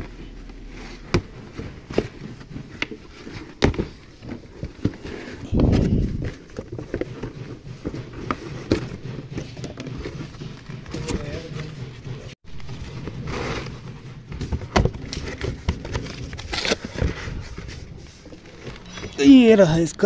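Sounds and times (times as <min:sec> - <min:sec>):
cardboard box flaps rustling: 0:00.4 - 0:11.4.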